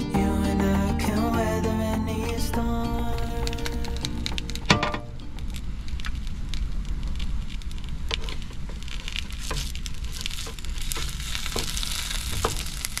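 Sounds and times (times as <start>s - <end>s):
sausages sizzling in a pan: 8.8s - 13.0s.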